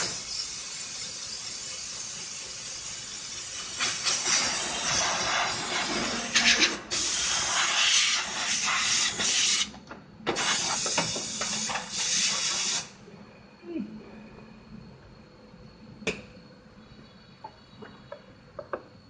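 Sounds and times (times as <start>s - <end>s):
pressurised hissing blasts: 0.0s - 9.7s, 10.3s - 13.0s.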